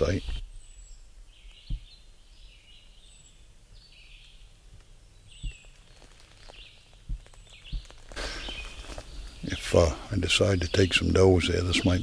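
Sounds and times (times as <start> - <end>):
birds calling: 0.0 - 12.0
footsteps in dry leaves: 5.5 - 9.4.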